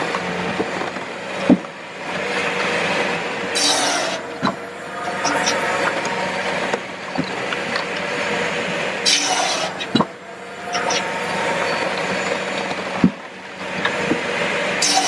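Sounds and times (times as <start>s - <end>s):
firewood processor running: 0.0s - 15.0s
hydraulic hiss: 3.5s - 4.2s, 9.0s - 9.9s, 14.8s - 15.0s.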